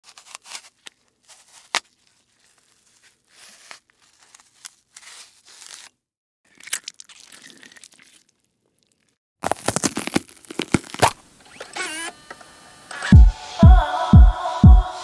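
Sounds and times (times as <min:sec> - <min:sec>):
crinkling and tearing: 0:00.0 - 0:11.3.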